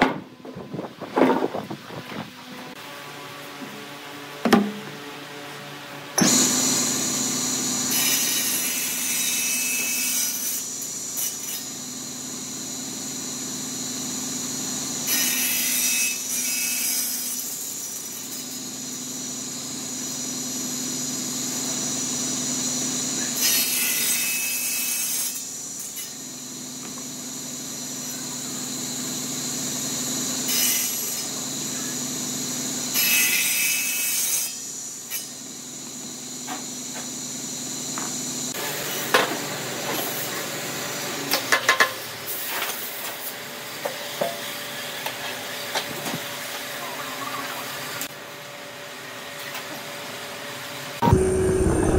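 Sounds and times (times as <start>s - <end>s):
table saw blade whine: 2.6s - 51.9s
saw cutting through block: 6.2s - 41.6s.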